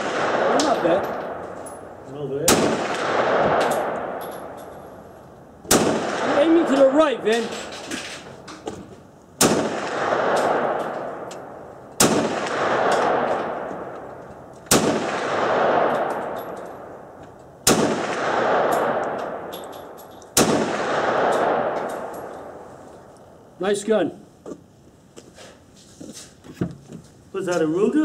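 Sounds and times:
pistol shots echoing: 0:00.0 - 0:01.5, 0:02.4 - 0:04.6, 0:05.7 - 0:07.0, 0:09.4 - 0:14.0, 0:14.7 - 0:22.6
faint light metal clinks: 0:19.5 - 0:20.4.

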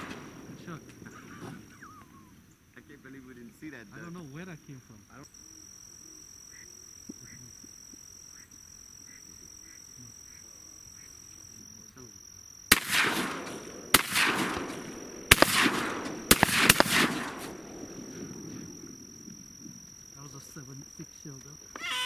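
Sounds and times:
shotgun shots echoing: 0:00.0 - 0:01.6, 0:12.7 - 0:19.2
high insect whine: 0:00.0 - 0:22.0
faint duck quacks: 0:06.0 - 0:07.6, 0:08.3 - 0:11.2.

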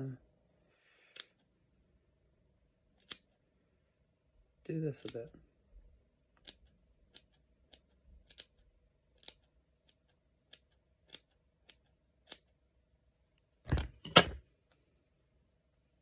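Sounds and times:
scissors snipping hair: 0:01.1 - 0:01.4, 0:03.0 - 0:03.3, 0:05.0 - 0:05.3, 0:06.4 - 0:08.6, 0:09.2 - 0:12.5.

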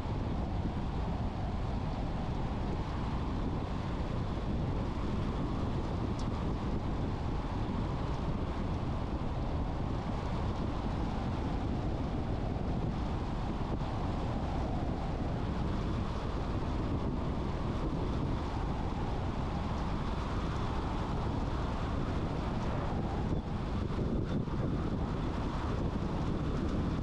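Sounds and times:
car road and wind noise: 0:00.0 - 0:27.0.

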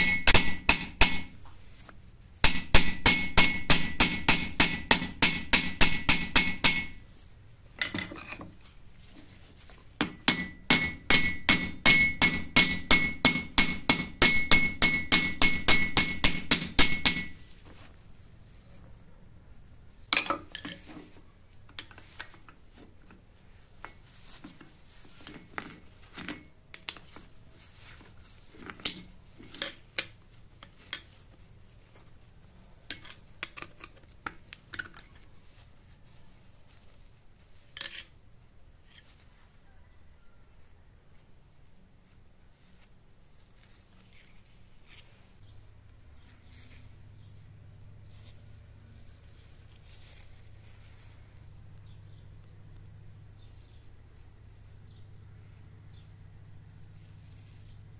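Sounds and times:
hammer striking metal: 0:00.0 - 0:08.2, 0:10.0 - 0:17.7
metal clinks and taps: 0:00.0 - 0:08.5, 0:09.2 - 0:18.1, 0:20.1 - 0:21.9, 0:23.8 - 0:27.1, 0:28.5 - 0:30.1.

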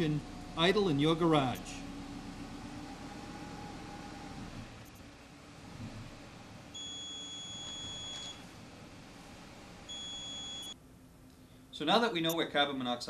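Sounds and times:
high-pitched alarm beeps: 0:06.8 - 0:08.4, 0:09.9 - 0:10.8.

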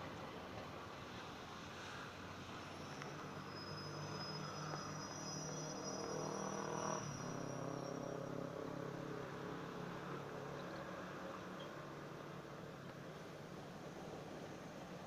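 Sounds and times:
thin high whine: 0:02.5 - 0:08.5.

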